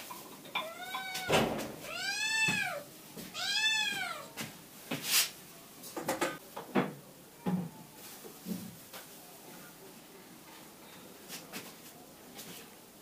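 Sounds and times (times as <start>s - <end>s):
kitten meowing: 0.7s - 2.8s, 3.4s - 4.3s
sharp knocks: 1.3s - 1.9s.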